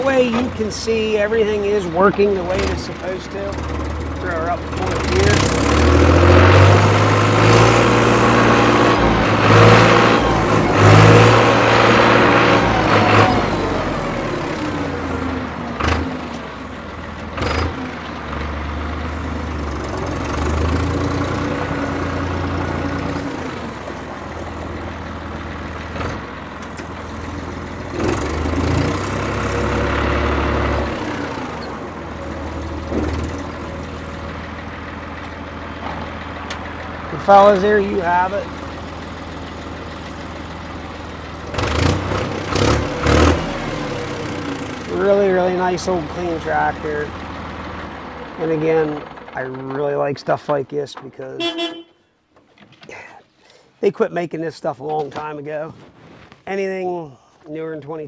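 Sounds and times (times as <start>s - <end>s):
tractor diesel engine revving: 0.0s - 52.0s.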